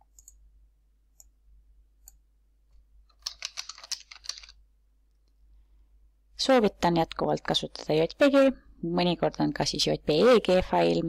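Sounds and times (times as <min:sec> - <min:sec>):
typing on computer keyboard: 0:03.1 - 0:04.6.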